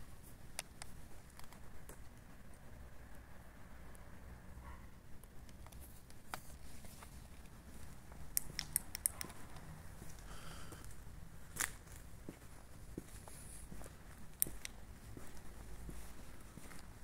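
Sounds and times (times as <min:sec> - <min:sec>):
sharp clicks and taps: 0:08.3 - 0:09.7.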